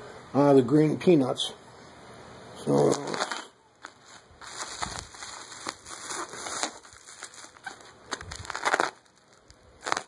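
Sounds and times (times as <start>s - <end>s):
bubble wrap crinkling: 2.8s - 10.0s.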